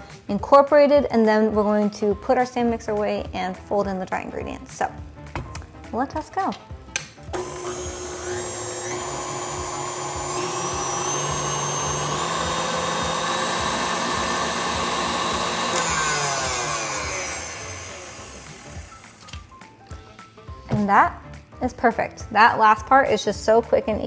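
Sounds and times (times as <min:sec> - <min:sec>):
stand mixer motor running: 0:07.4 - 0:19.5
wire whisk beating ingredients: 0:07.4 - 0:20.6.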